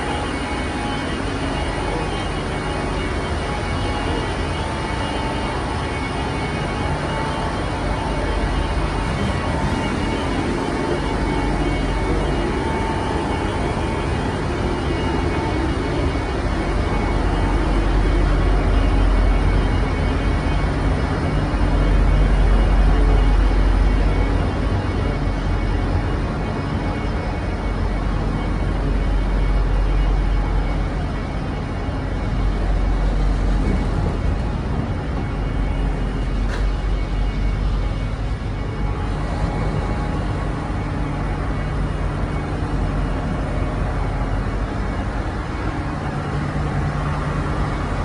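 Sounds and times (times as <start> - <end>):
ship machinery droning: 0.0 - 48.0.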